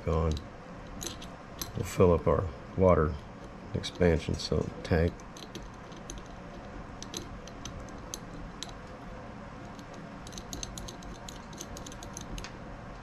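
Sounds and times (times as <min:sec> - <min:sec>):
faint steady hum: 0:00.0 - 0:13.0
small brass fittings clicking: 0:03.8 - 0:08.8, 0:09.8 - 0:12.5.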